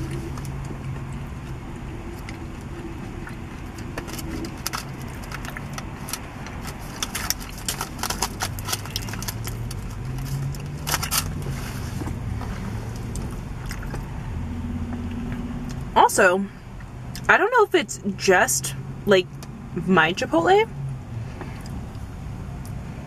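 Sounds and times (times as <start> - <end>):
chewing: 0.0 - 11.3
foil wrapper crinkling: 4.0 - 11.4.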